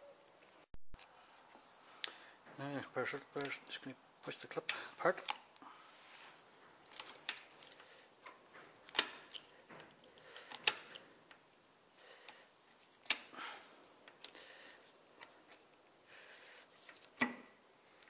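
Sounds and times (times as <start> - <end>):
circlip snapping: 8.9 - 9.5, 13.0 - 13.3.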